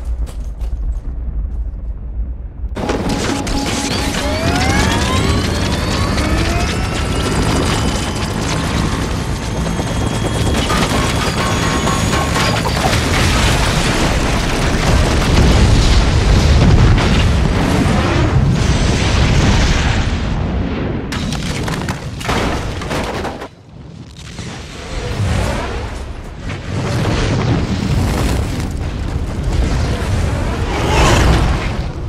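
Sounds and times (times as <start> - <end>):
debris cracks: 2.8 - 17.6, 21.1 - 24.3
explosion rumbling blast: 12.7 - 21.1.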